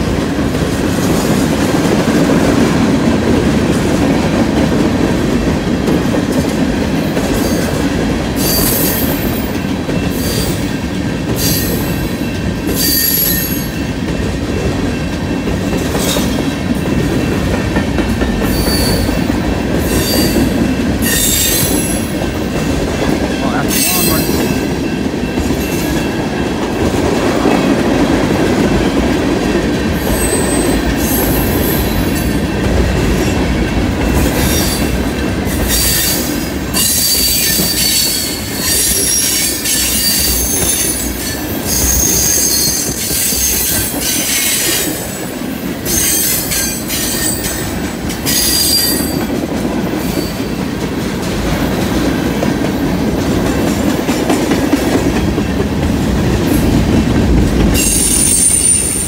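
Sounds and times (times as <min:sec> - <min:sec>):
train wheels rumbling and clattering: 0:00.0 - 0:59.0
high wheel squeal: 0:36.8 - 0:44.8, 0:57.8 - 0:59.0.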